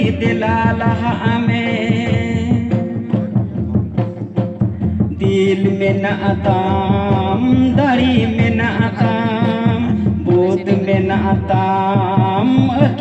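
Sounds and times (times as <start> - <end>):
fast drum beat: 0.0 - 13.0
voices singing: 5.1 - 13.0.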